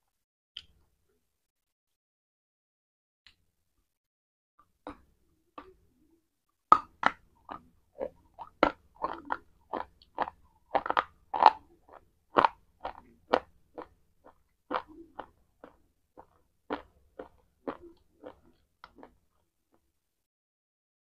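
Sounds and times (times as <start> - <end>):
crunchy bar being chewed: 7.0 - 19.2.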